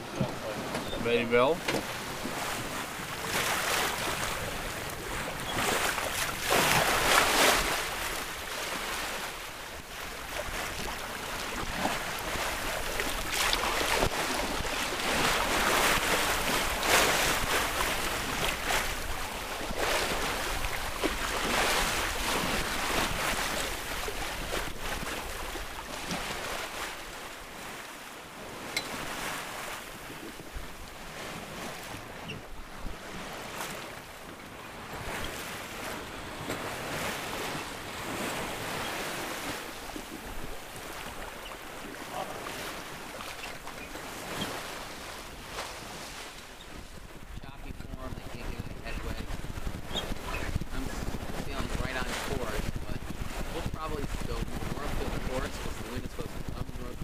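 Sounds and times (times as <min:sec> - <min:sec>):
water splashing along boat hull: 0:00.0 - 0:57.0
wind buffeting microphone: 0:43.8 - 0:57.0.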